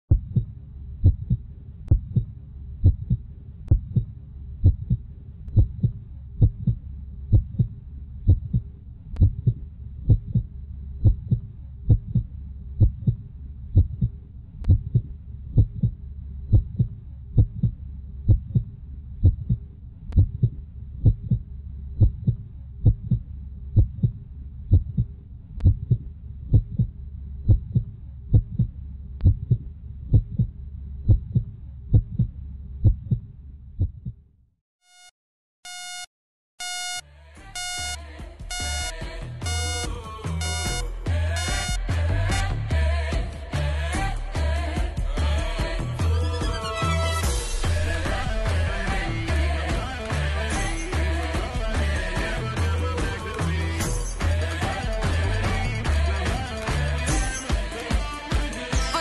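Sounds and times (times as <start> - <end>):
heartbeat thumps: 0.0 - 34.2, 37.6 - 43.3.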